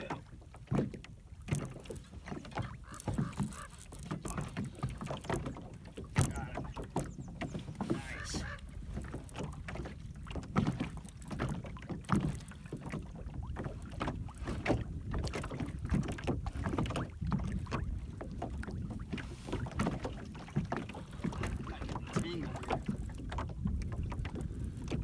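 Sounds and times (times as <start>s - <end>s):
waves slapping boat hull: 0.0s - 25.0s
wind rumble on microphone: 13.0s - 25.0s.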